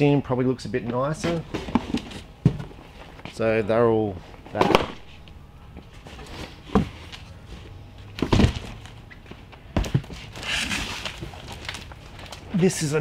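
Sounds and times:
boxes thumping down: 0:01.1 - 0:02.8, 0:08.1 - 0:08.9, 0:09.7 - 0:11.4.

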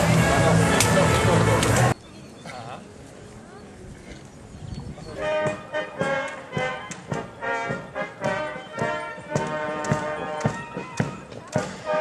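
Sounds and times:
band playing march music: 0:05.2 - 0:12.0
steady drum beat: 0:05.4 - 0:12.0.

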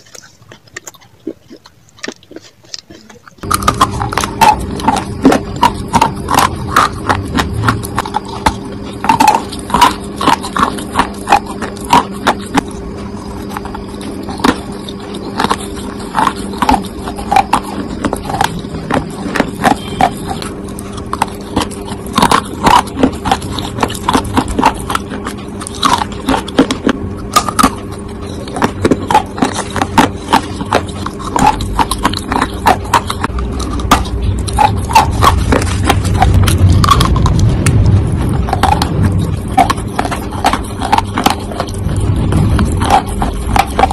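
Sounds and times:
crunching and chewing: 0:00.0 - 0:43.9
low hum: 0:00.0 - 0:43.9
low rumble: 0:12.7 - 0:43.9.

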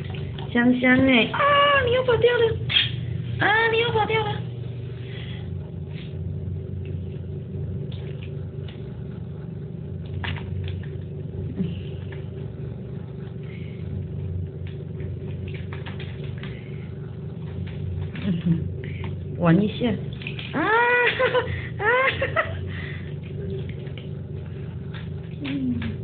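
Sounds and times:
water splashing in plastic basin: 0:00.0 - 0:02.1, 0:10.0 - 0:11.1, 0:14.6 - 0:22.4, 0:23.2 - 0:26.0
steady low hum: 0:00.0 - 0:26.0.

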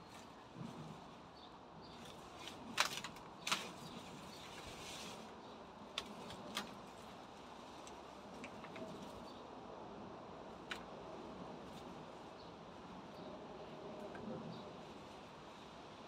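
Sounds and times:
stems cracking: 0:01.9 - 0:04.7, 0:05.9 - 0:07.2.

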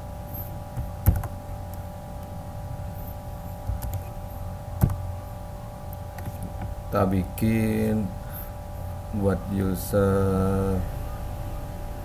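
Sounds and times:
steady electrical hum: 0:00.0 - 0:12.0.

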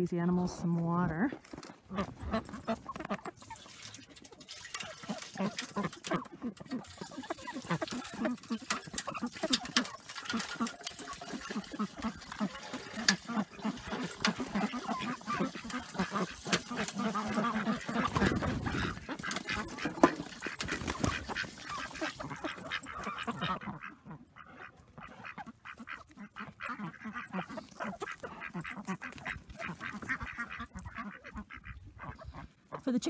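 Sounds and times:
ducks quacking: 0:01.1 - 0:33.0
hot water pouring: 0:03.4 - 0:23.6.

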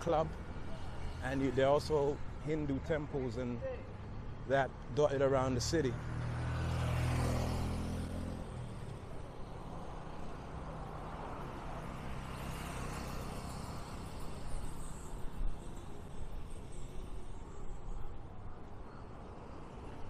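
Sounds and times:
traffic and road noise: 0:00.0 - 0:20.0
motorcycle passing: 0:05.5 - 0:17.4.

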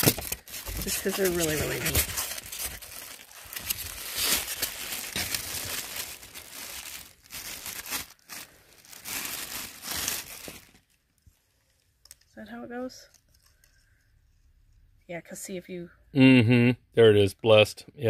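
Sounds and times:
plastic bag crinkling: 0:00.0 - 0:11.2.

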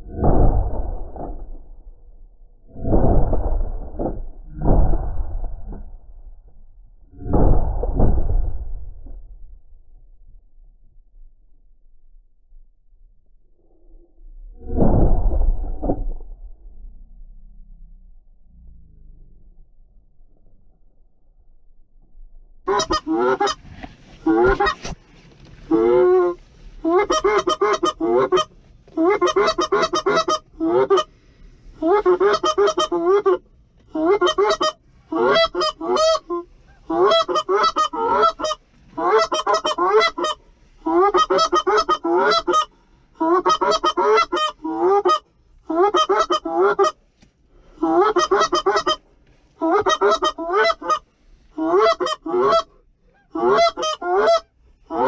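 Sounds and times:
goose honking: 0:22.7 - 0:24.9, 0:25.7 - 0:31.1, 0:31.8 - 0:47.0, 0:47.8 - 0:49.0, 0:49.6 - 0:55.0.

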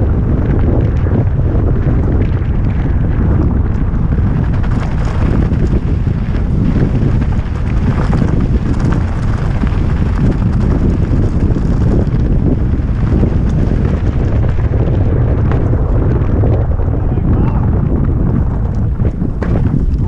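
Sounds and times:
bike tyres on loose gravel: 0:00.0 - 0:20.0
wind buffeting microphone: 0:00.0 - 0:20.0.

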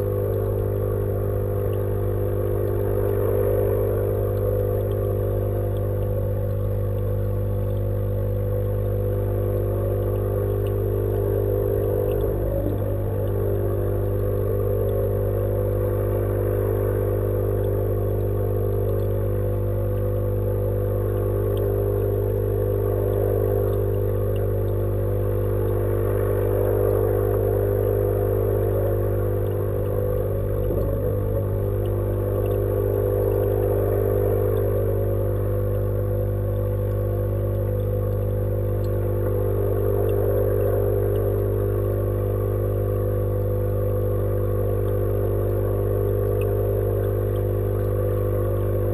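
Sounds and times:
faint ticks: 0:00.0 - 0:48.9
pump humming underwater: 0:00.0 - 0:48.9.

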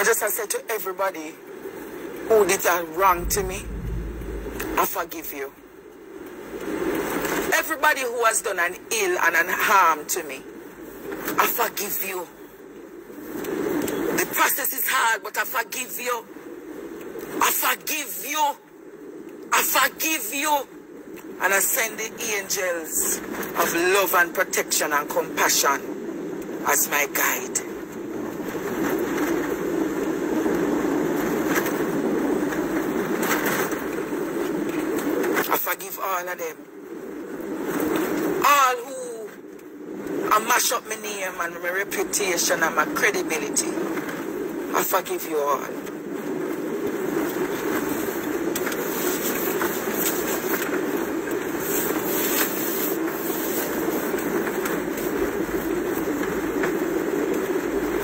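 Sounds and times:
vehicle hum inside car: 0:03.0 - 0:04.8.

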